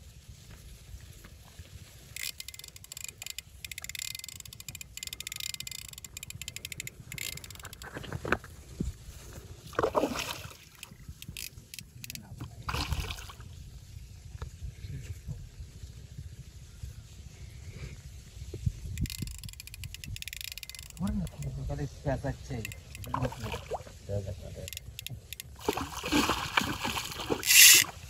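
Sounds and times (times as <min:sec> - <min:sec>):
wind rumble on microphone: 0:00.0 - 0:02.2, 0:06.9 - 0:20.4
fishing reel ticking: 0:02.1 - 0:08.0, 0:10.8 - 0:12.3, 0:18.9 - 0:23.5, 0:24.5 - 0:25.7, 0:27.4 - 0:27.9
fish splashing at water surface: 0:09.7 - 0:10.9, 0:12.7 - 0:13.4, 0:25.5 - 0:28.0.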